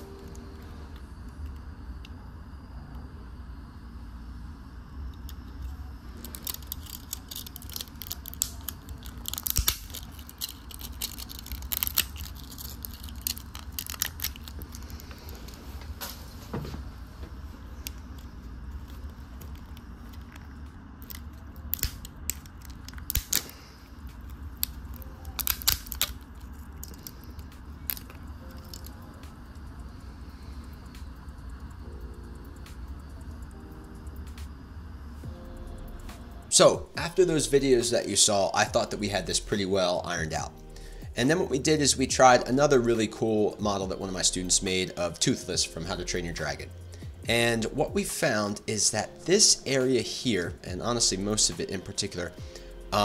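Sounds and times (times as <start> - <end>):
steady low hum: 0.0 - 53.0
plastic snapping and crackling: 6.2 - 16.2, 19.4 - 29.0.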